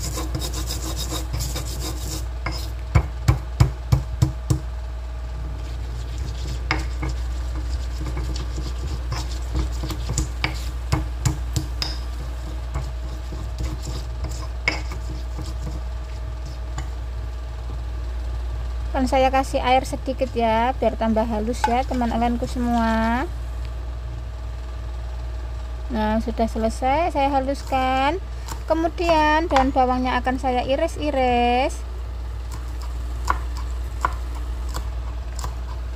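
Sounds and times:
stone pestle grinding in mortar: 0:00.0 - 0:02.8, 0:05.6 - 0:17.0
pestle pounding knocks: 0:02.9 - 0:04.7, 0:06.4 - 0:15.8.

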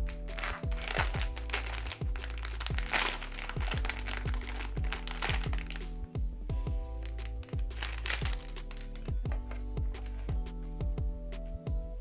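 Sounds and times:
background music with steady beat: 0:00.0 - 0:12.0
plastic packaging crinkling: 0:00.3 - 0:05.8, 0:07.0 - 0:09.1.

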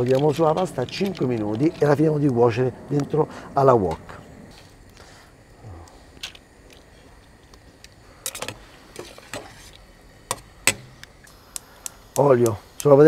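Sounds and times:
mussel shells clicking: 0:00.0 - 0:02.4, 0:05.8 - 0:08.6.

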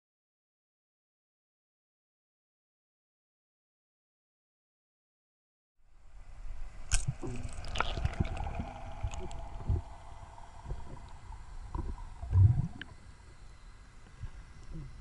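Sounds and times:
steady underwater hum: 0:05.8 - 0:15.0
underwater knocks and clicks: 0:11.7 - 0:12.9.

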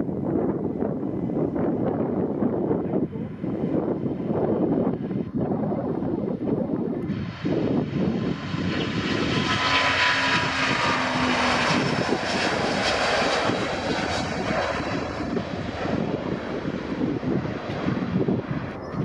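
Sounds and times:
jet engines at takeoff thrust: 0:00.0 - 0:19.0
faint engine whine: 0:00.2 - 0:19.0.

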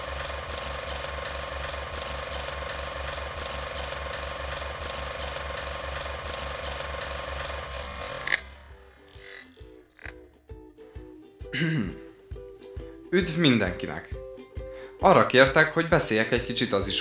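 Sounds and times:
sharp projector click: 0:00.0 - 0:08.5
film projector clattering: 0:00.0 - 0:10.1
projector hum: 0:00.0 - 0:10.2.

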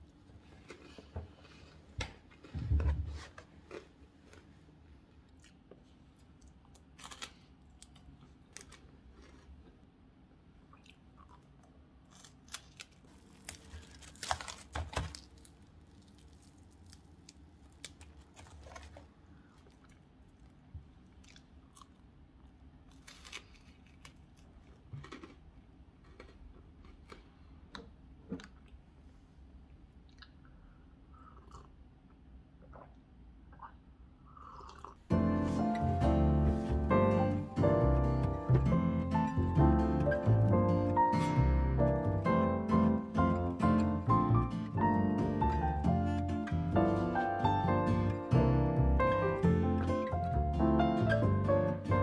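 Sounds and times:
crunching and chewing crisp bar: 0:03.6 - 0:04.5, 0:05.3 - 0:10.0, 0:10.6 - 0:28.8
crackling of bar breaking: 0:12.2 - 0:17.2.

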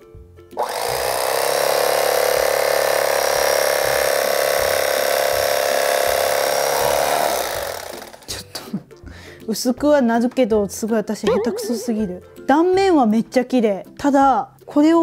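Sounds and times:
electric knife buzzing: 0:00.6 - 0:08.3.

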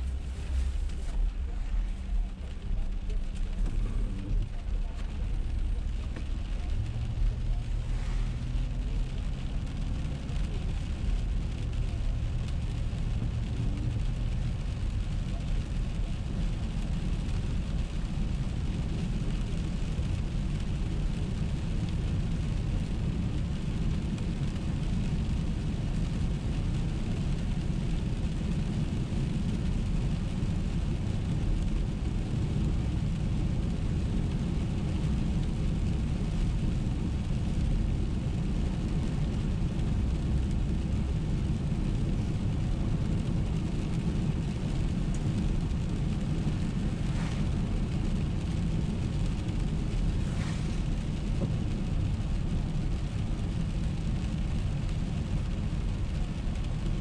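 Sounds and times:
faint hiss: 0:00.0 - 0:09.3, 0:22.2 - 0:54.6
car driving on wet road: 0:00.0 - 0:57.0.

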